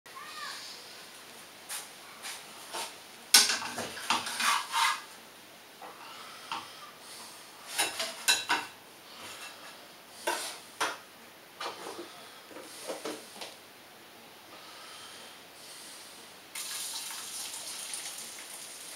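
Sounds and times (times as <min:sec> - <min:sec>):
kitchenware clattering: 0:03.3 - 0:05.1, 0:07.7 - 0:09.5.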